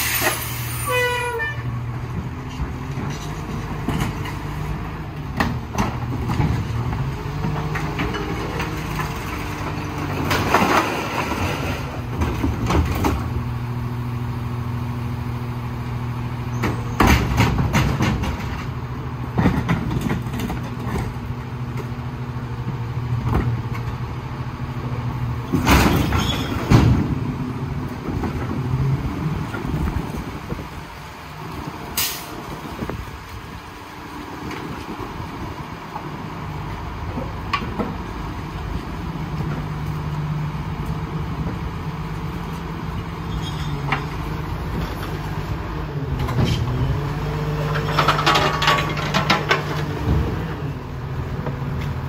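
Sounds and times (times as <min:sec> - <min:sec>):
clattering knocks and bangs: 0:16.6 - 0:18.7, 0:47.8 - 0:50.4.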